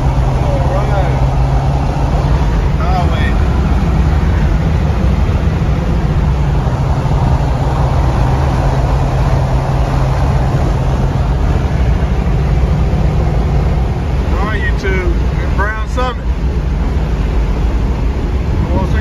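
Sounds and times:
car engine drone: 0.0 - 19.0
road noise in car cabin: 0.0 - 19.0.

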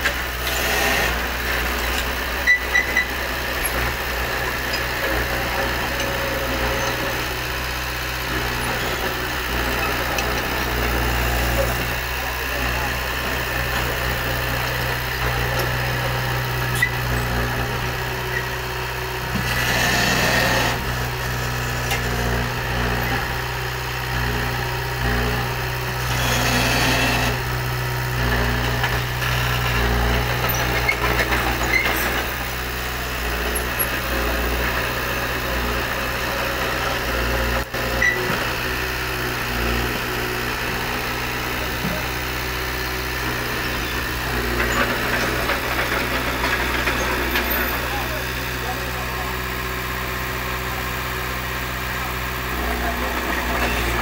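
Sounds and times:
bulldozer diesel engine running: 0.0 - 54.0.

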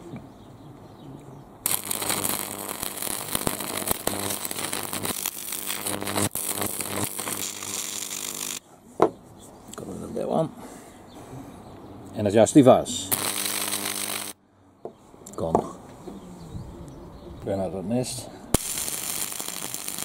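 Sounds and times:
bug zapper buzzing and crackling: 1.6 - 8.6, 13.1 - 14.4, 18.6 - 20.0.

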